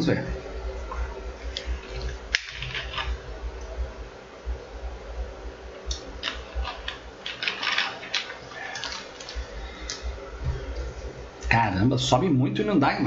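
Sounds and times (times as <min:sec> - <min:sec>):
low steady rumble: 0:00.0 - 0:07.4, 0:08.1 - 0:13.0
plastic bottle crackling: 0:06.2 - 0:10.0.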